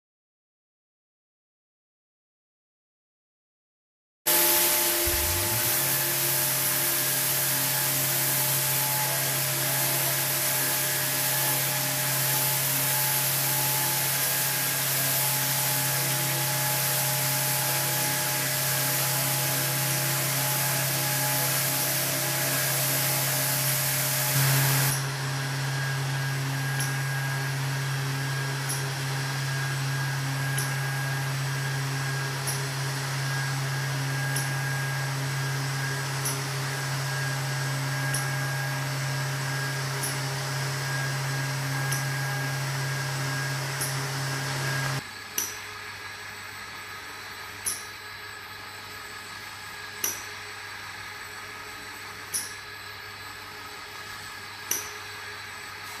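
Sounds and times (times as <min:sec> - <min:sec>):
machine motor hum: 0:04.3 - 0:45.0.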